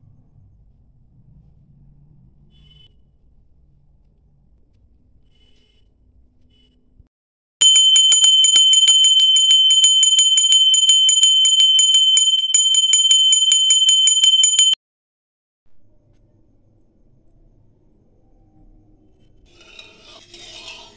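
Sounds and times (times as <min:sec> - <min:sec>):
bell ringing rapidly: 0:07.6 - 0:14.8.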